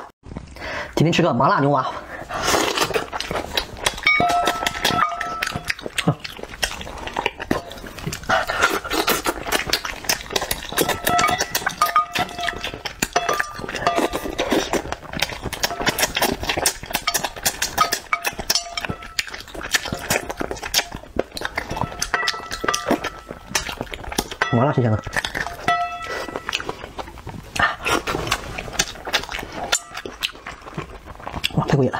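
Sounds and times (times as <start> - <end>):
chewing: 2.0 - 31.9
mouth clicks and smacks: 2.3 - 31.9
chopsticks clinking on dishes: 4.0 - 5.8, 10.7 - 14.8, 17.0 - 21.0, 21.6 - 26.7.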